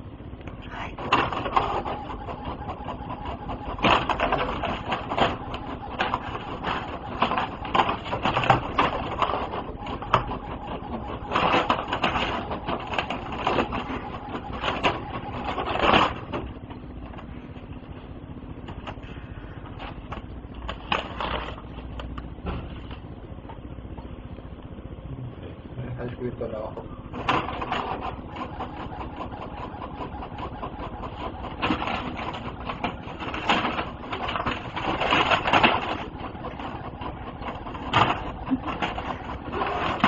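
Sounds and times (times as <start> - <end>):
inkjet printer printing: 0.7 - 16.7, 27.1 - 40.0.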